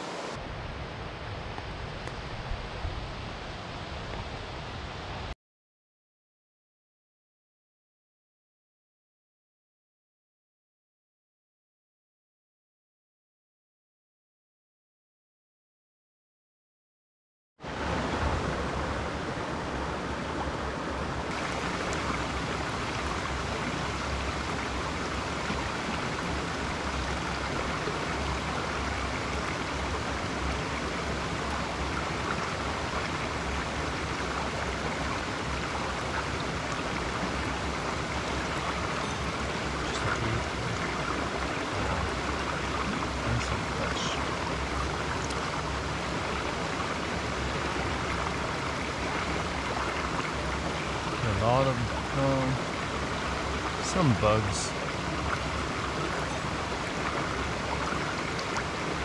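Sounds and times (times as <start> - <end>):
stream babbling over stones: 0.0 - 0.4, 17.7 - 59.0.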